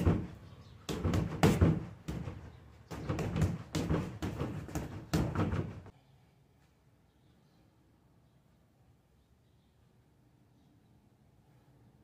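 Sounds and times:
punches hitting heavy bag: 0.0 - 5.9.

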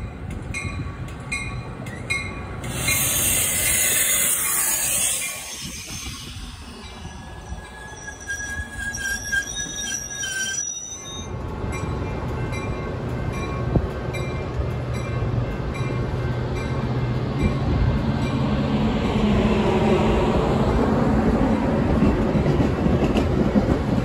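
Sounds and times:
train rumble: 0.0 - 24.0
high metallic squeal: 2.7 - 11.3.

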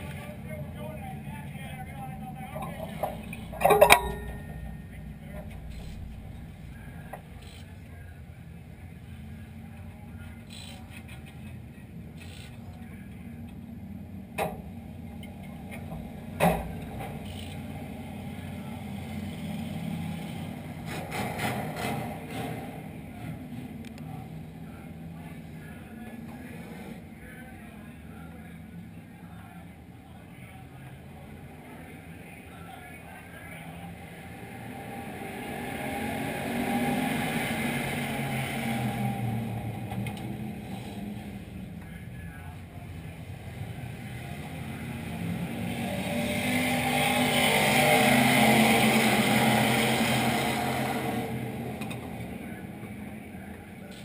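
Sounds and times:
race car engines drone: 0.0 - 54.0
race car engine idling: 0.5 - 10.2.

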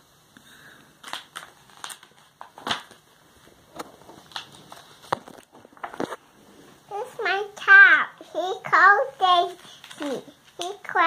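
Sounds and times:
book pages rustling: 1.0 - 6.4, 9.1 - 11.0.

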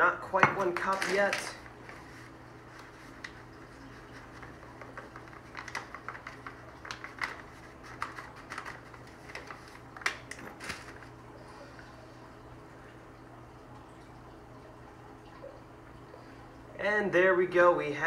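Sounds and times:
paper bag crinkling: 0.6 - 11.2.

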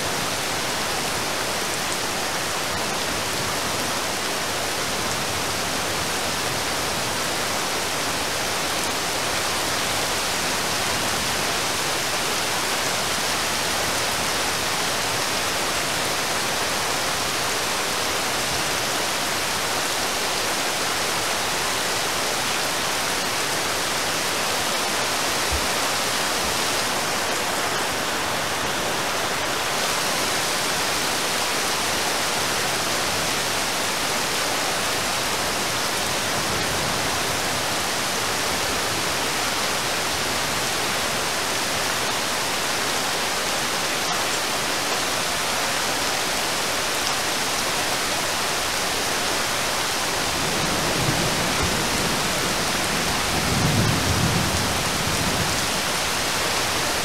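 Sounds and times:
rain falling on water: 0.0 - 57.0.

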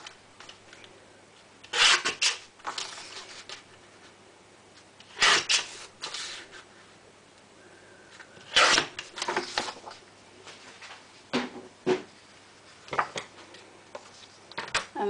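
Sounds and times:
paper trimmer rasping through paper: 1.7 - 2.4, 5.1 - 5.8
paper shifting: 1.7 - 3.7, 5.1 - 6.8, 8.4 - 10.0.

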